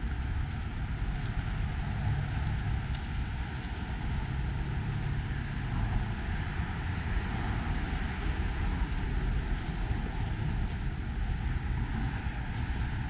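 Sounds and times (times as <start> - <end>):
road traffic rumble: 0.0 - 13.0.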